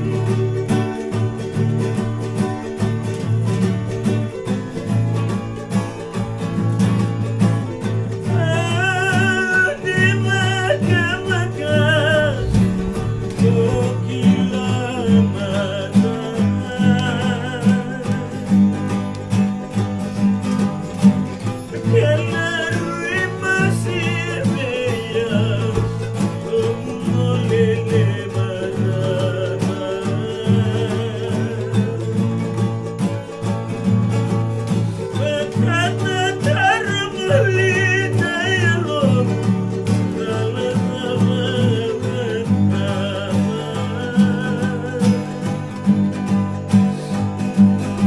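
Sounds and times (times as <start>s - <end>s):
acoustic guitars strumming: 0.0s - 48.0s
voices singing held melody: 8.2s - 18.6s, 21.7s - 32.6s, 35.2s - 45.9s.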